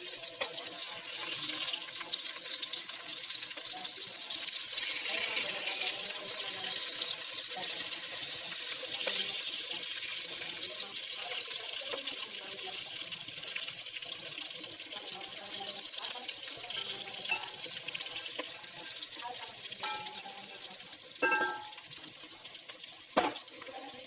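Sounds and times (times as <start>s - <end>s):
vegetables sizzling in oil: 0.0s - 24.0s
metal utensil clinking on pot: 16.7s - 17.8s, 19.8s - 20.4s, 21.2s - 21.9s.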